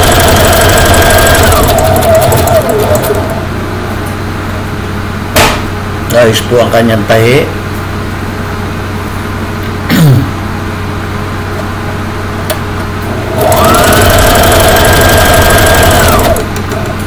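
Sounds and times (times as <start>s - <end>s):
sewing machine motor whirring: 0.0s - 3.4s, 13.2s - 17.0s.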